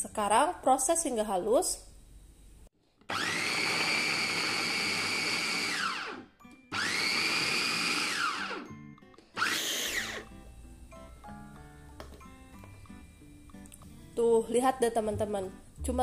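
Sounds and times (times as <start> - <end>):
electric food chopper running: 3.1 - 8.7, 9.4 - 10.3.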